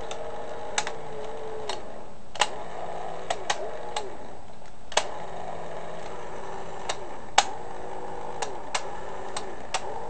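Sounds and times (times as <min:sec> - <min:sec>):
sharp gear clicks: 0:00.0 - 0:02.6, 0:03.2 - 0:05.2
small toy motor whirring: 0:00.0 - 0:10.0.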